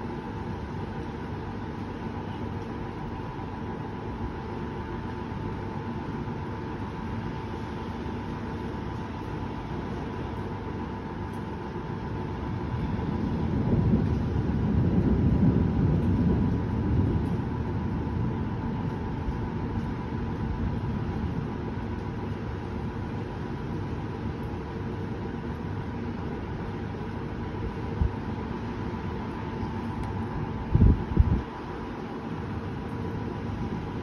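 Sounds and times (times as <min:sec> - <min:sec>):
low background rumble: 0:00.0 - 0:34.0
distant thunder rumble: 0:12.2 - 0:24.2.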